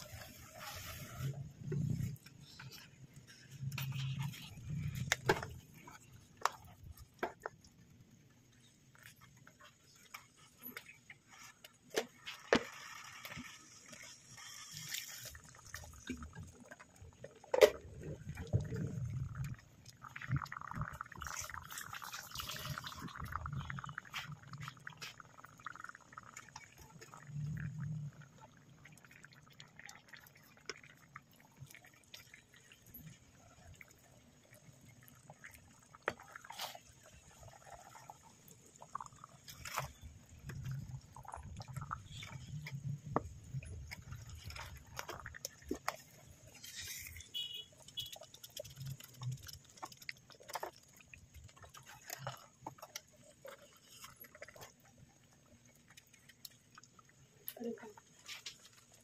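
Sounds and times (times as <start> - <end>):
pasta stirred in sauce: 0.0 - 27.3, 28.1 - 59.0.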